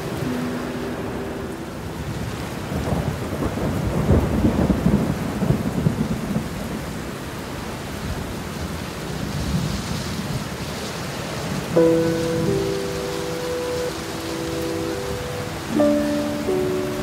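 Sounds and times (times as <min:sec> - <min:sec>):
thunder rumbling: 0:00.0 - 0:07.1
heavy rain: 0:00.0 - 0:17.0.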